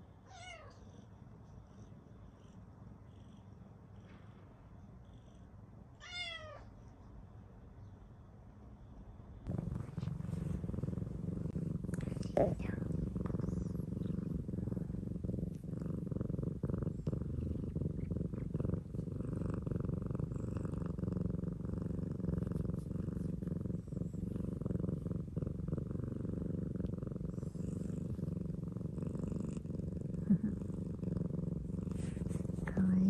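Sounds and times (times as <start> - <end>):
cat purring loudly: 9.3 - 33.0.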